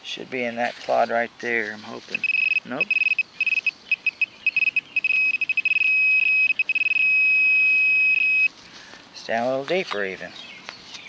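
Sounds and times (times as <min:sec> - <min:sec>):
metal detector probe beeping: 0:02.2 - 0:08.6.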